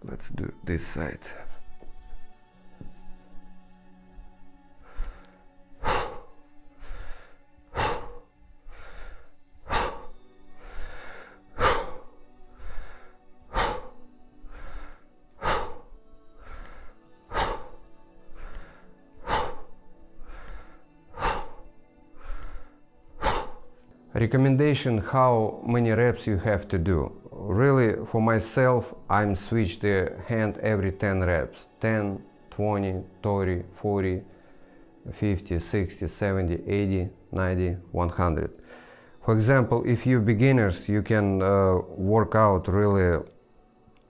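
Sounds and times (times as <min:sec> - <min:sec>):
faint background music: 0:00.0 - 0:44.0
man breathing forcefully: 0:04.3 - 0:24.0, 0:34.3 - 0:35.0, 0:38.6 - 0:39.2.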